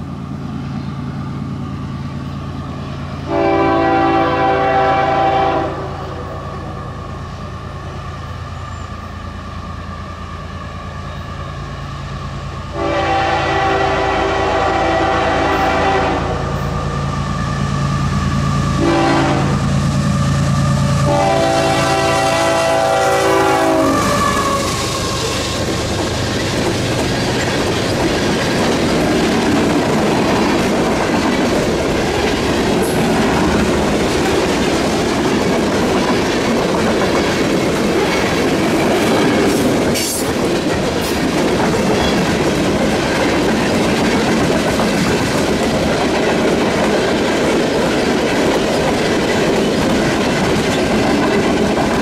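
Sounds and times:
diesel locomotive engine rumbling: 0.0s - 52.0s
train air horn blasts: 3.3s - 6.4s, 12.7s - 16.9s, 18.6s - 25.7s
freight cars rumbling: 13.5s - 52.0s
wheels clicking over rail joints: 24.0s - 52.0s.

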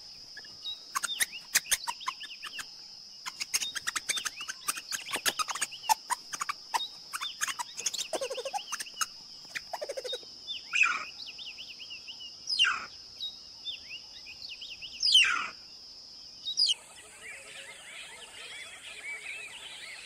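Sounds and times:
rapid bird chirping: 0.0s - 15.6s, 16.4s - 20.0s
chorus of chirping birds: 0.0s - 20.0s
loud downward sweeping bird calls: 3.3s - 11.0s, 16.6s - 20.0s.

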